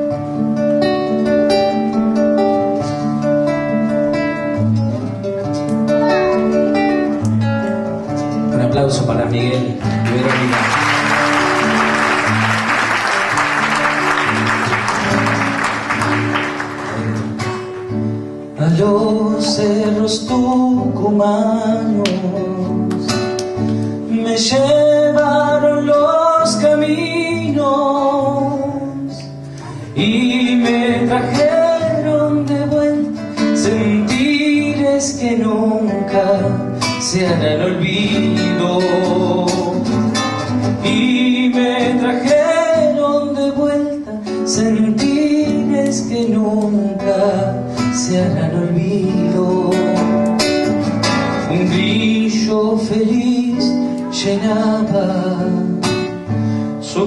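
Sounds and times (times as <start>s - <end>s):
strummed acoustic guitar: 0.0s - 57.0s
man singing folk song: 8.2s - 12.0s, 18.5s - 57.0s
audience applause: 9.9s - 17.8s.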